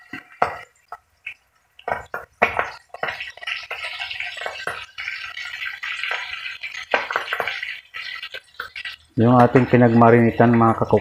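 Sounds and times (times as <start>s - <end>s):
fish frying in hot oil: 0.0s - 11.0s
oil popping: 0.0s - 11.0s.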